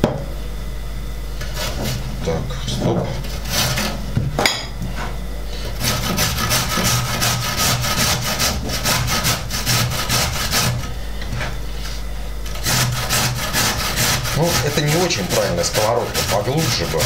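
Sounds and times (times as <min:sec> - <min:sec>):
carrot rasping on metal grater: 0:01.4 - 0:02.0, 0:03.2 - 0:04.0, 0:05.8 - 0:11.6, 0:12.5 - 0:17.0.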